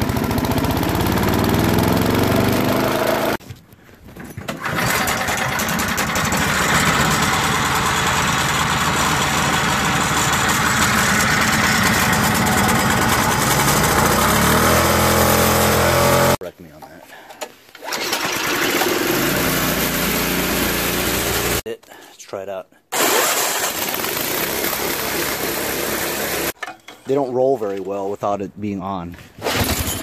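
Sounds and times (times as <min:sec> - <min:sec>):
lawn mower engine running: 0:00.0 - 0:03.4, 0:04.5 - 0:16.4, 0:17.9 - 0:21.6, 0:23.2 - 0:26.6
snowblower engine running: 0:00.0 - 0:03.4, 0:04.6 - 0:16.4, 0:17.9 - 0:21.6, 0:23.3 - 0:26.6.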